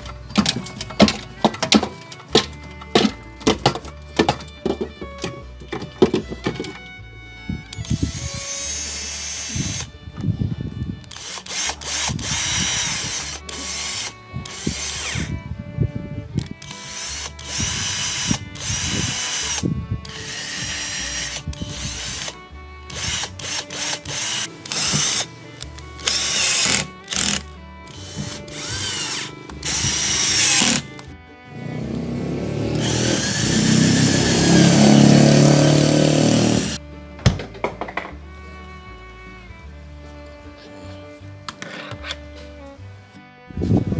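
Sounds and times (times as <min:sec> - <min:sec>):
background music: 0:00.0 - 0:43.9
power drill whining in bursts: 0:07.7 - 0:09.9, 0:11.0 - 0:15.3, 0:16.6 - 0:31.0, 0:31.8 - 0:36.8.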